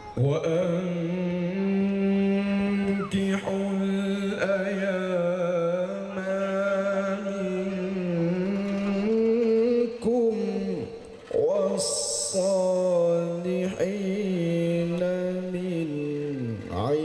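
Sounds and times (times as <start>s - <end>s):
man reciting melodically: 0.0s - 17.0s.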